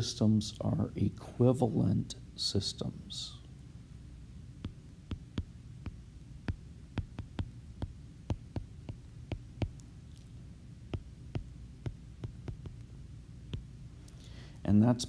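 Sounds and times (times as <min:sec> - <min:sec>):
low steady hum: 0:00.0 - 0:15.0
stylus tapping on glass screen: 0:04.6 - 0:09.8, 0:10.9 - 0:12.9, 0:13.5 - 0:13.7.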